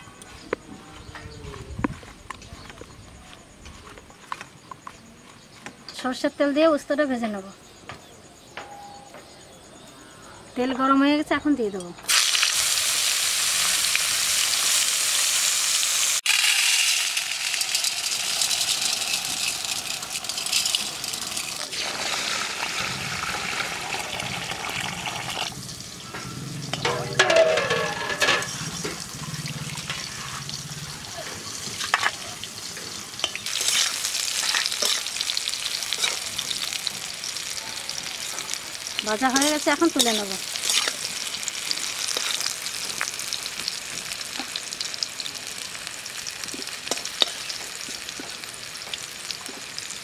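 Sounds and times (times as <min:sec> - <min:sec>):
vegetables sizzling in oil: 0:12.0 - 0:50.0
water pouring onto lentils: 0:16.2 - 0:25.5
spatula turning food: 0:26.7 - 0:43.8.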